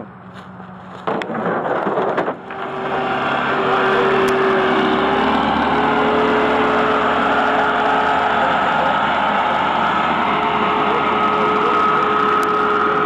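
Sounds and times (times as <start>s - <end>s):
diesel engine running: 0.0s - 13.0s
sharp knocks: 1.0s - 2.9s.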